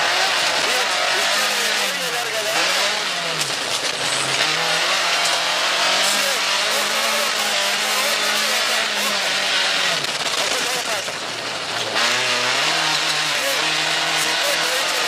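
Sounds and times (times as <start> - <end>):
rally car engine revving: 0.0 - 15.0
road and tyre noise: 0.0 - 15.0.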